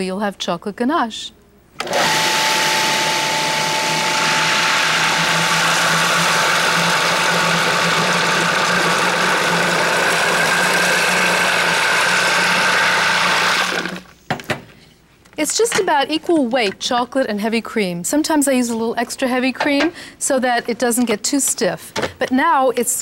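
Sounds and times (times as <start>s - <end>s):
food processor motor humming: 1.8s - 14.1s.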